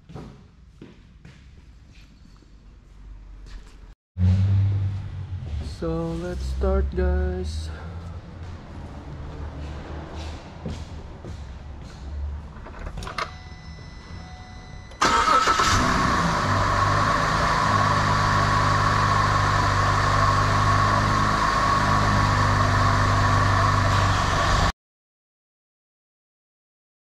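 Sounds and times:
car engine starting and idling: 0:04.2 - 0:24.7.

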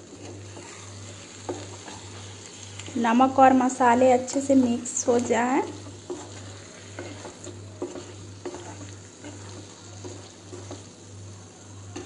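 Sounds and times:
soft sizzle: 0:00.0 - 0:12.0
spatula scraping a pan: 0:00.0 - 0:12.0.

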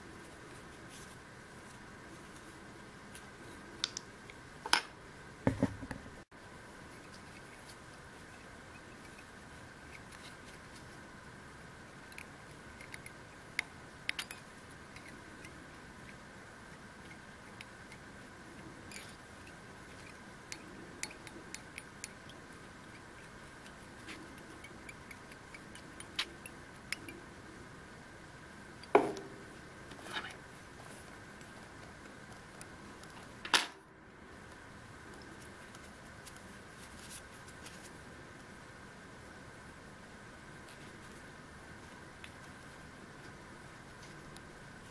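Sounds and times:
faint steady hum: 0:00.0 - 0:44.9
small clicks and ticks: 0:12.0 - 0:27.2.

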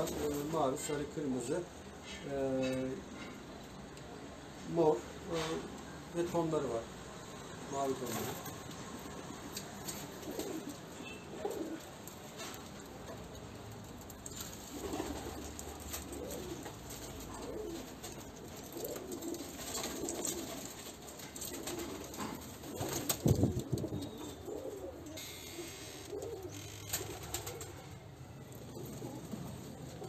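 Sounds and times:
pigeons cooing: 0:08.0 - 0:30.0.

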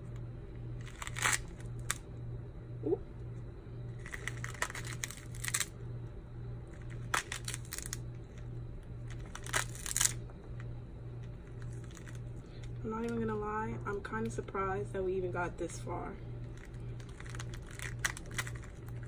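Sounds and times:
low steady hum: 0:00.0 - 0:19.0
fruit rind cracking and tearing: 0:00.8 - 0:02.1, 0:04.0 - 0:05.8, 0:06.7 - 0:12.8, 0:16.4 - 0:19.0.

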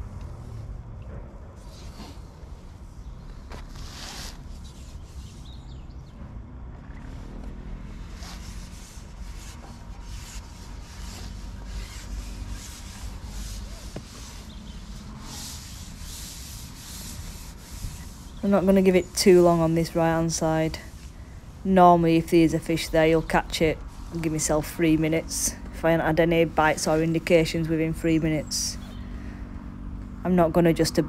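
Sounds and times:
constant low rumble: 0:00.0 - 0:31.0
rustling and rubbing: 0:01.4 - 0:06.0, 0:07.1 - 0:27.6.

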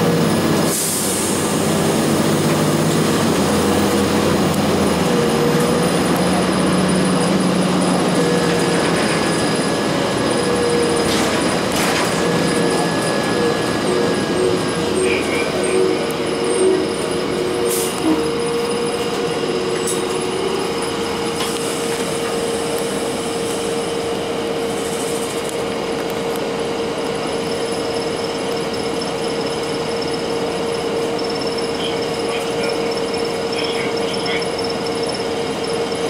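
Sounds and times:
diesel bus running noise: 0:00.0 - 0:36.0
constant whine: 0:01.3 - 0:36.0.

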